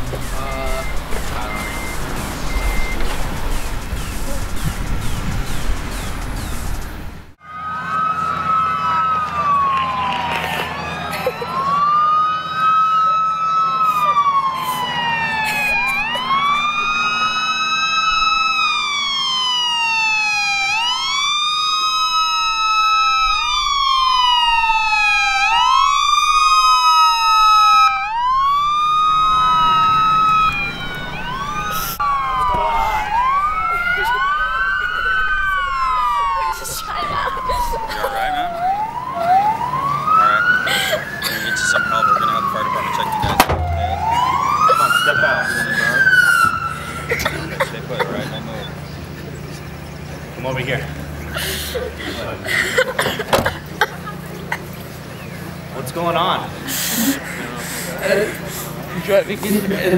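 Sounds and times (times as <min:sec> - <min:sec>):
police sirens wailing: 0:00.0 - 0:59.9.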